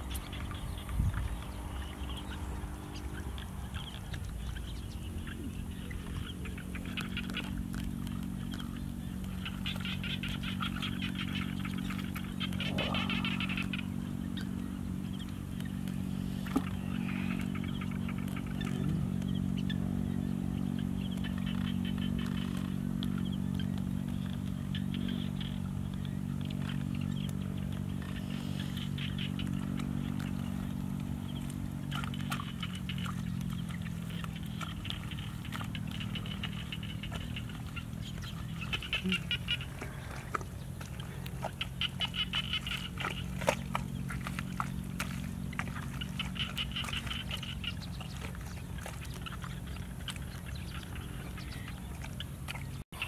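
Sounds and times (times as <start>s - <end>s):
low motor drone: 0.0s - 53.0s
hands squelching through wet mud: 5.4s - 53.0s
high chirping calls: 8.4s - 43.3s.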